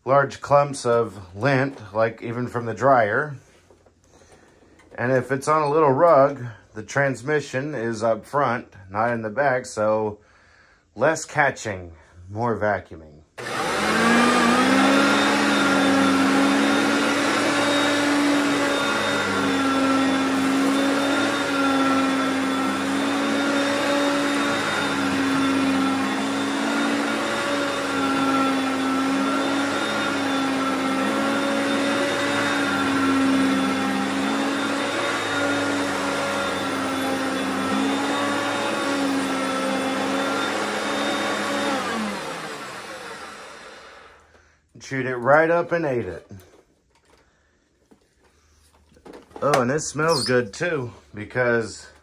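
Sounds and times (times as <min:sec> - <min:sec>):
vacuum cleaner running: 0:13.4 - 0:44.4, 0:49.4 - 0:50.4.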